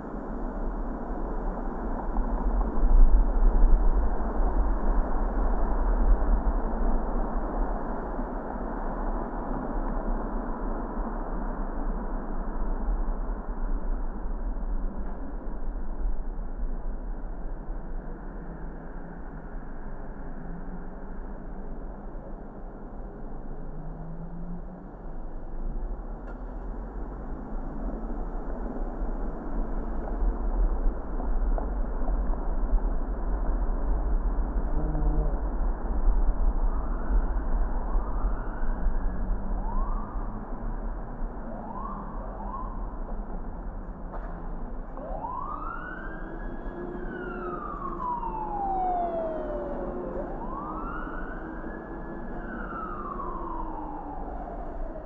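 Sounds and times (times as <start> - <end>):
car engine rumble: 0.0 - 55.0
road noise: 0.0 - 55.0
emergency siren wailing: 36.5 - 43.6, 44.8 - 55.0.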